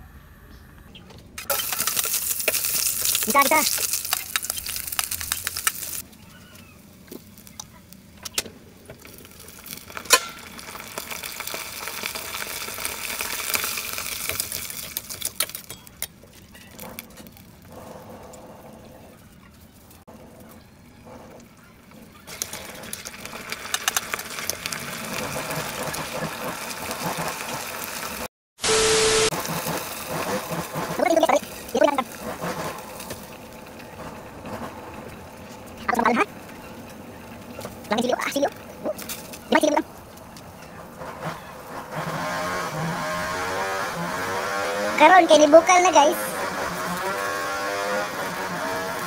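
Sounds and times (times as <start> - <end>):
food sizzling in oil: 1.4 - 6.1, 9.0 - 15.7, 22.3 - 34.0.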